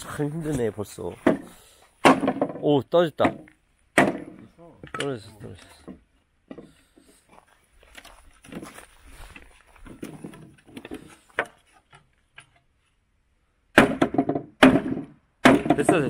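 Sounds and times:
wood knocks and scrapes: 0:00.5 - 0:04.5, 0:08.0 - 0:12.7.

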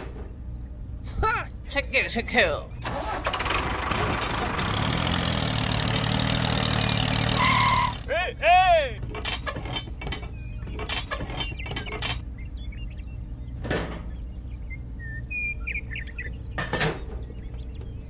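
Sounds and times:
faint bird chirps: 0:10.2 - 0:18.0.

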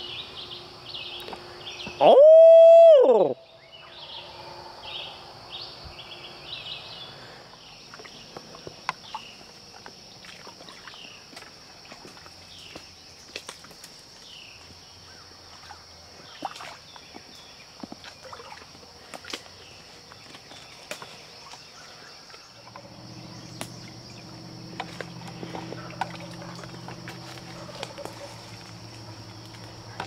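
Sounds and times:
high insect drone: 0:00.0 - 0:30.0
footsteps crunching through twigs: 0:19.1 - 0:30.0
low steady hum: 0:21.2 - 0:30.0.

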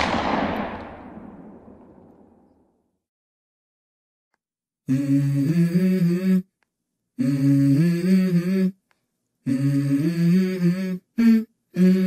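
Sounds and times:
person humming a melody: 0:04.8 - 0:06.5, 0:07.2 - 0:08.8, 0:09.4 - 0:12.0.

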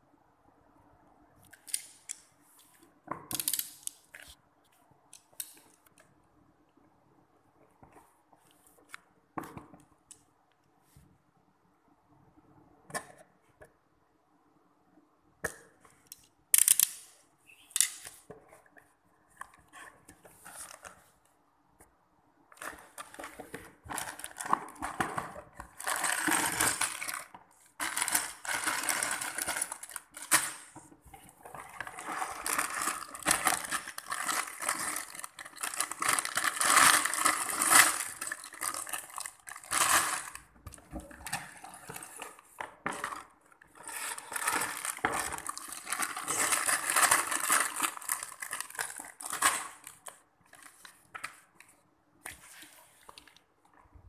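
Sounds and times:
plastic bags crinkling: 0:22.6 - 0:30.8, 0:31.5 - 0:51.0.

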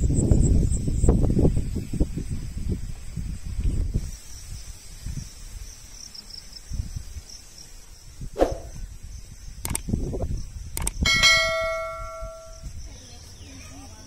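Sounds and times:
faint insect buzz: 0:00.2 - 0:11.0, 0:12.0 - 0:14.0
mouse clicks: 0:09.6 - 0:09.8
bright bell chime: 0:11.1 - 0:12.7.

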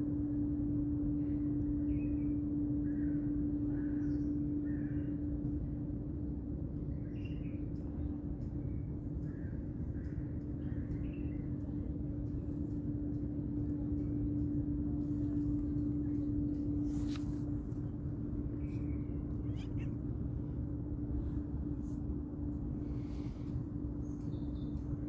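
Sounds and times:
steady low hum: 0:00.0 - 0:25.0
kitten meowing: 0:19.4 - 0:20.0.

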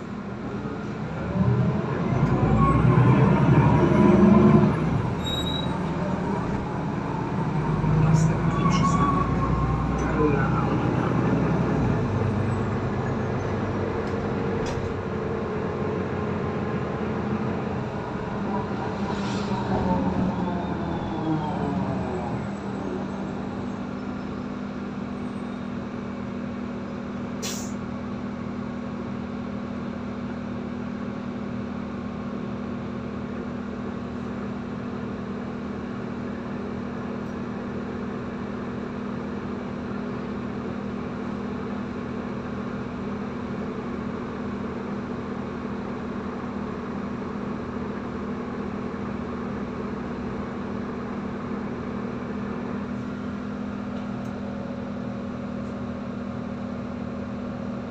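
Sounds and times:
bus diesel engine hum: 0:00.0 - 0:57.9
air brake hiss: 0:27.4 - 0:27.8.

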